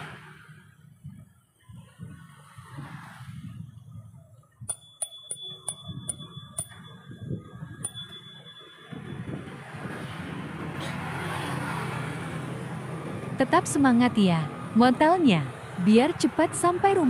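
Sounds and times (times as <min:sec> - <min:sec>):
wind and road noise: 0:00.0 - 0:17.0
bicycle bell dings: 0:04.7 - 0:09.6.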